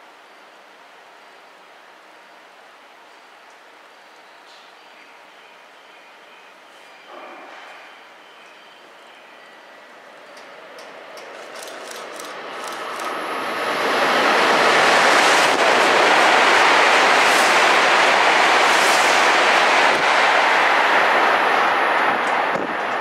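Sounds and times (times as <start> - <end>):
train rushing past: 9.6 - 23.0.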